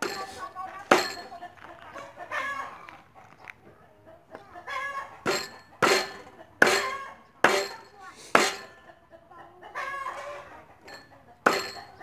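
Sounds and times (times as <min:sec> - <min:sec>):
chickens clucking: 0:00.0 - 0:12.0
cleaver chopping on wooden block: 0:05.3 - 0:07.8, 0:08.4 - 0:08.7, 0:11.5 - 0:11.8.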